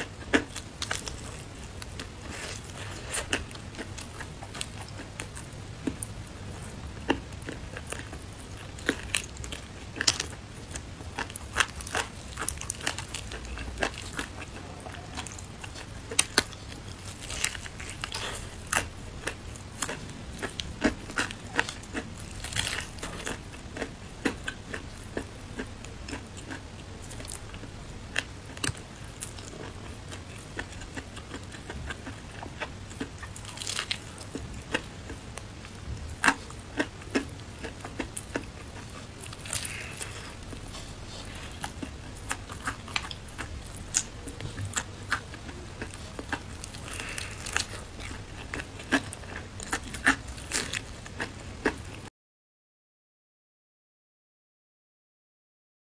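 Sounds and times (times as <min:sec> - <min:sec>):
crust crackling as torn: 0:21.6 - 0:23.4, 0:39.2 - 0:44.9
crunching bites of fried chicken: 0:27.2 - 0:35.2, 0:36.2 - 0:51.8.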